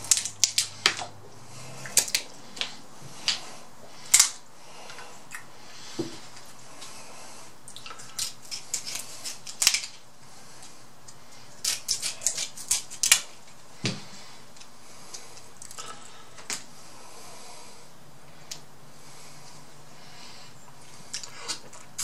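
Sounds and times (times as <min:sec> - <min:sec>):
scissors cracking crab shell: 0:07.7 - 0:10.0, 0:11.6 - 0:13.3.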